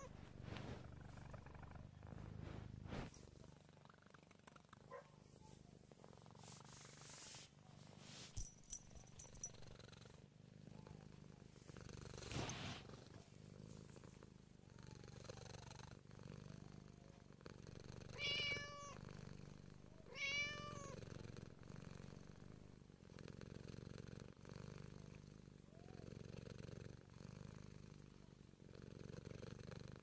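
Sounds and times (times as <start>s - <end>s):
cat purring: 0.0s - 30.0s
cat meowing: 18.2s - 19.0s, 20.1s - 21.0s.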